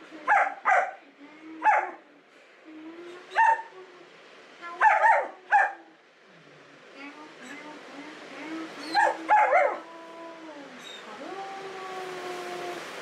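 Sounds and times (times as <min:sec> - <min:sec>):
puppy barking: 0:00.3 - 0:01.0, 0:01.6 - 0:02.0, 0:03.4 - 0:03.7, 0:04.8 - 0:05.8, 0:08.9 - 0:09.8.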